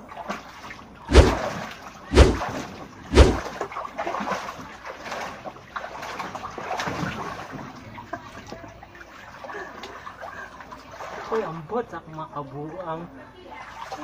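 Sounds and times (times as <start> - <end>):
heavy water splashes: 0.0 - 8.0, 8.9 - 11.8
water sloshing and lapping: 0.0 - 14.0.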